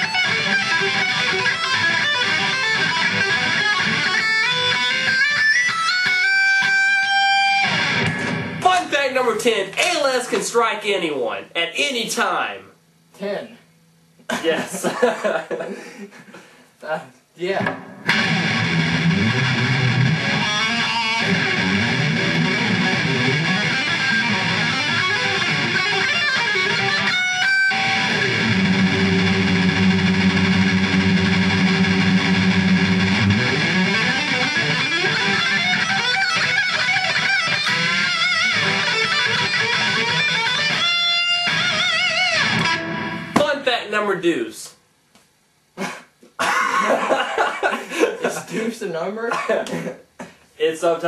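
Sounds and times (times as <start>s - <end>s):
electric guitar metal solo: 0.0s - 8.7s, 17.6s - 43.4s.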